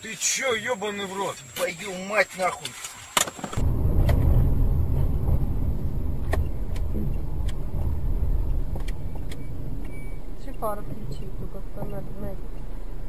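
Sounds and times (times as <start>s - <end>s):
car interior road rumble: 3.5s - 13.0s.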